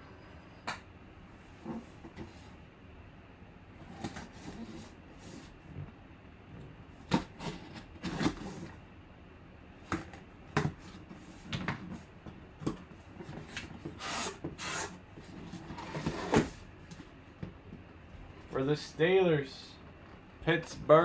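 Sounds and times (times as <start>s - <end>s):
scrapes and rustles of cardboard: 3.8s - 5.9s, 7.1s - 8.8s
rasping tape tears: 14.0s - 15.0s.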